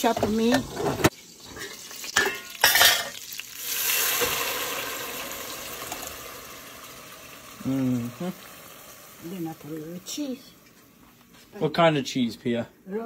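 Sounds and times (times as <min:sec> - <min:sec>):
sauce sizzling in hot oil: 0:01.1 - 0:11.0.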